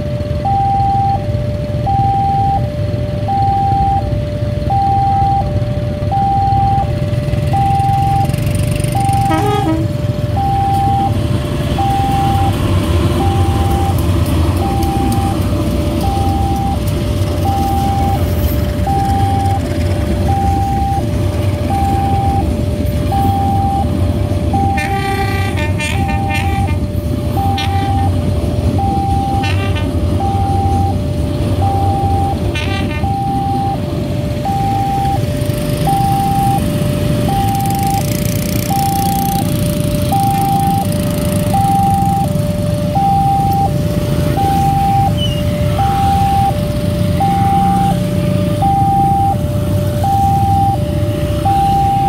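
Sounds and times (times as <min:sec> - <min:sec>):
two-tone crossing warning siren: 0:00.0 - 0:52.0
passing train rumble: 0:02.7 - 0:52.0
train horn: 0:09.2 - 0:10.0, 0:24.8 - 0:26.8, 0:29.4 - 0:29.9, 0:32.5 - 0:33.1.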